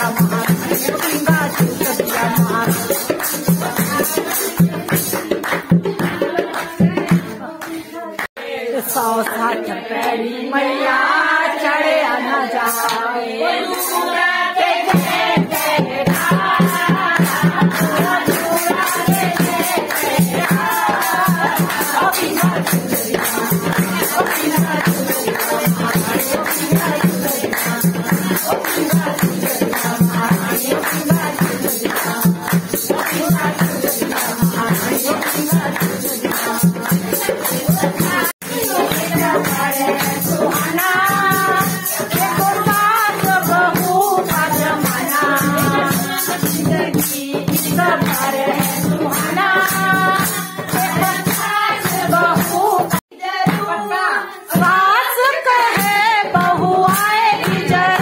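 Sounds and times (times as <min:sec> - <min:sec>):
tambourine jingling: 0:00.0 - 0:05.8, 0:14.8 - 0:53.0
voices singing devotional song: 0:00.0 - 0:58.0.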